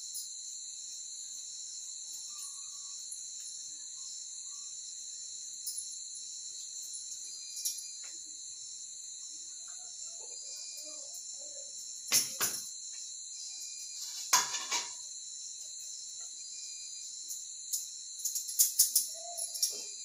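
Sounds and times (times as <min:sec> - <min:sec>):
crickets trilling: 0:00.0 - 0:20.0.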